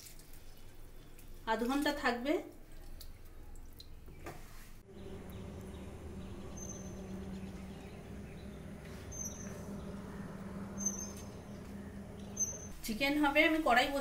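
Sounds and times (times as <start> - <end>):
steady low hum: 4.8 - 14.0
high bird chirps: 4.9 - 12.8.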